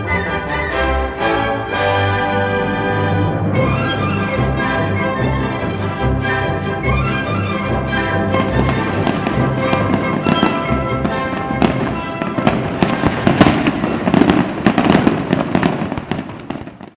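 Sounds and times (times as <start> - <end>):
festive orchestral music: 0.0 - 16.8
fireworks crackling and banging: 8.2 - 16.9.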